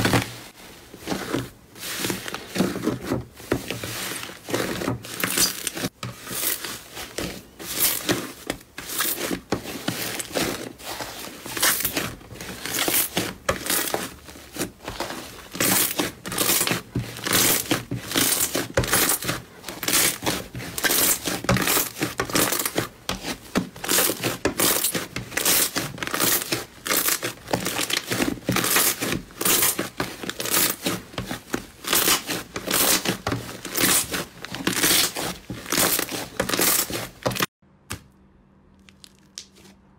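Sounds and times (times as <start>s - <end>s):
slime crackling and crinkling: 0.0s - 38.1s, 38.8s - 39.8s.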